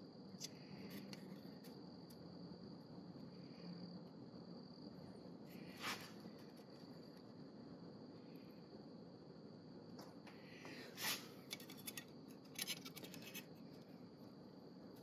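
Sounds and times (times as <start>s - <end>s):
short metallic scrape: 11.0s - 11.3s.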